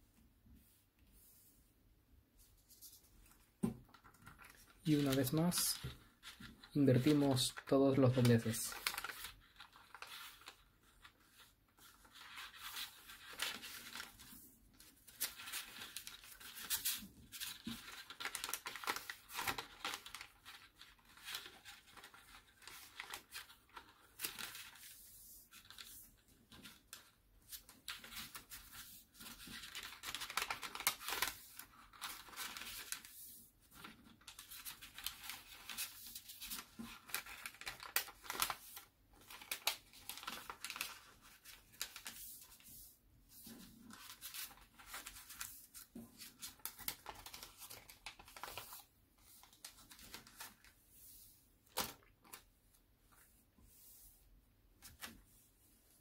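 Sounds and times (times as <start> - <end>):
stiff paper crackling and rustling: 2.6 - 53.9.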